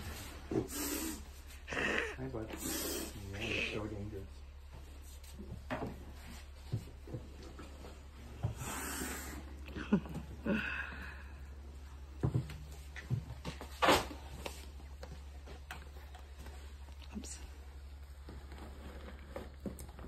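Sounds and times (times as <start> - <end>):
snake hissing: 0.6 - 1.9, 2.6 - 3.8, 8.6 - 9.5.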